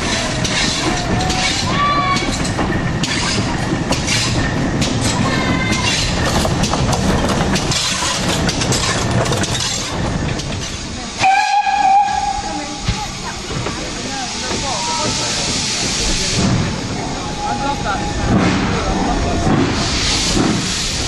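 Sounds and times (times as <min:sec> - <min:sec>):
rail clicks: 0:00.0 - 0:21.0
train rumbling: 0:00.0 - 0:21.0
steam locomotive whistle: 0:11.2 - 0:12.5.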